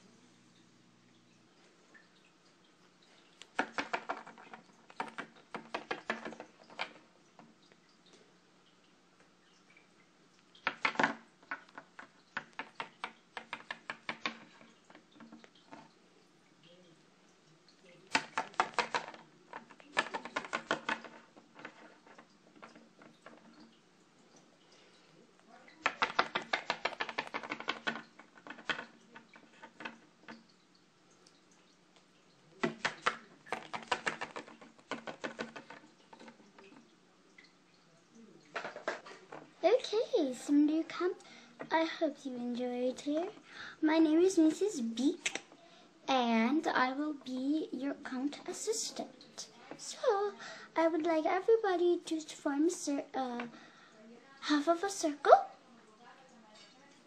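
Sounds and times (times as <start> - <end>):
plastic figurines tapping on wood: 3.4 - 7.0, 10.6 - 15.8, 18.1 - 23.6, 25.8 - 30.4, 32.6 - 36.8, 38.5 - 39.5
plastic toys clicking on tabletop: 3.4 - 7.0, 10.6 - 15.9, 18.1 - 23.7, 25.8 - 30.4, 32.6 - 36.8, 45.0 - 45.6.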